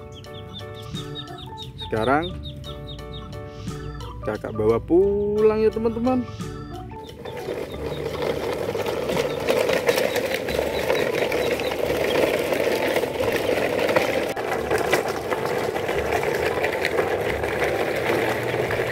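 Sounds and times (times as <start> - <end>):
toy trucks rattling on dirt: 7.0 - 18.9.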